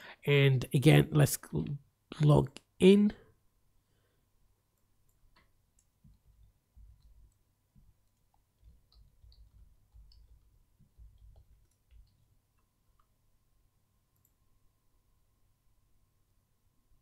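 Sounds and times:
typing on keyboard: 5.1s - 13.1s.

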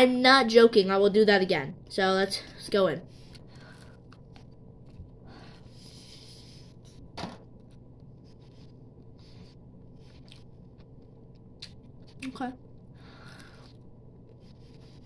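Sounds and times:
person chewing: 10.1s - 12.0s.

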